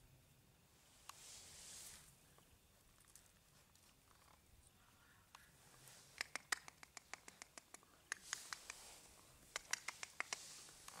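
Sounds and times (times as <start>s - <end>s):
puppy claws clicking on rubber tiles: 6.2s - 8.8s, 9.5s - 11.0s.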